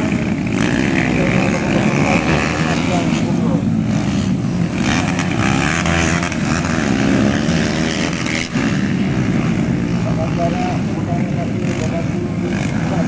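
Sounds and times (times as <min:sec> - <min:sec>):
motorcycle engines revving: 0:00.0 - 0:13.0.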